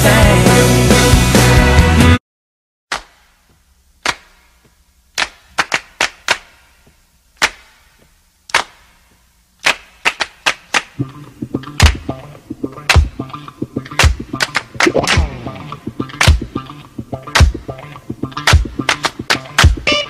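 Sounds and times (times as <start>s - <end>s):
sharp knocks echoing: 12.8s - 16.8s.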